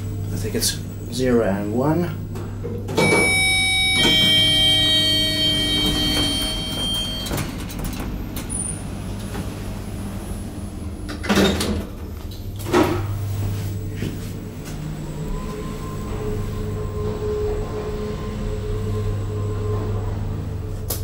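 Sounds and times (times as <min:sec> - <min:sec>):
elevator low hum: 0:00.0 - 0:21.0
multi-pitch ringing tone: 0:03.0 - 0:07.7
elevator button click: 0:03.0 - 0:08.0.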